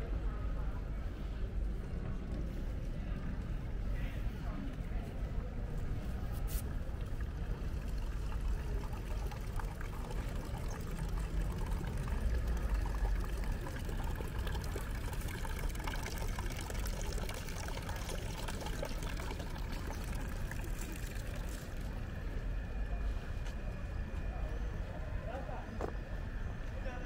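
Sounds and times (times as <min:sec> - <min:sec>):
running water pouring: 0:07.0 - 0:22.0.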